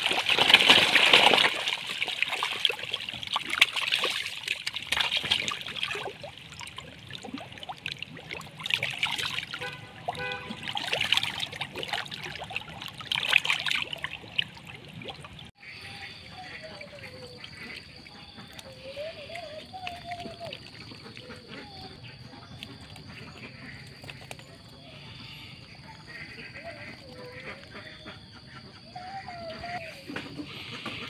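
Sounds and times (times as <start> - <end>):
catfish splashing at water surface: 0.0 - 21.6.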